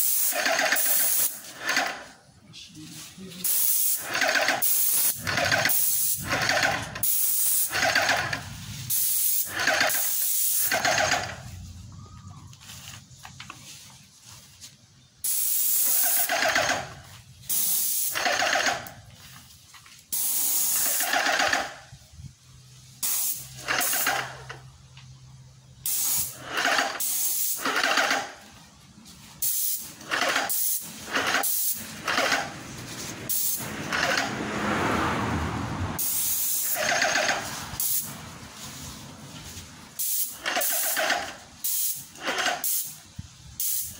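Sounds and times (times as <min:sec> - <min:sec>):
paint sprayer hissing: 0:00.0 - 0:02.0, 0:03.3 - 0:11.6, 0:15.2 - 0:19.4, 0:20.1 - 0:21.7, 0:22.9 - 0:24.6, 0:25.8 - 0:34.4, 0:36.0 - 0:43.9.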